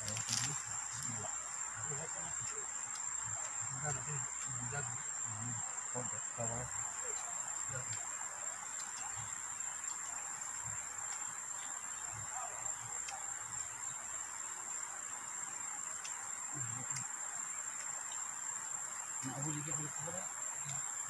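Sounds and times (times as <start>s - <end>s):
low murmured voices: 0.0s - 8.1s
insects chirring: 0.0s - 21.0s.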